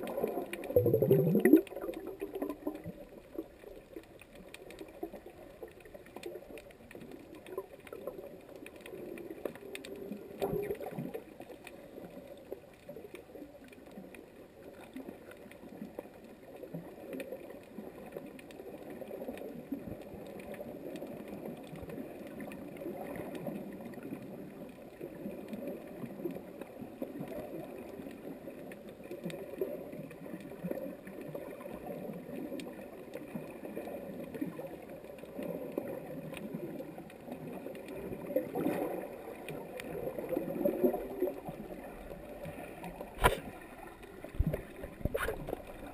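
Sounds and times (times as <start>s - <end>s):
faint clicks: 0.0s - 45.9s
muffled underwater churning: 0.0s - 45.9s.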